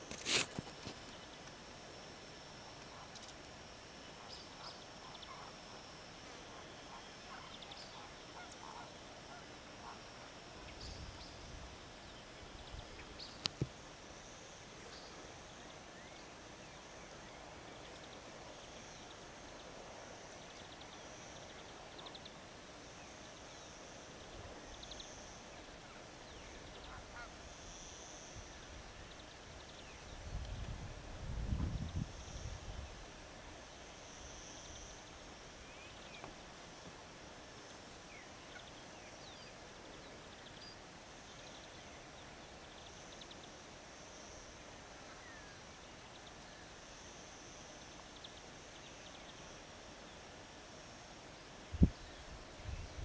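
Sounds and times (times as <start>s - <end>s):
flamingos honking and gabbling: 6.5s - 10.2s.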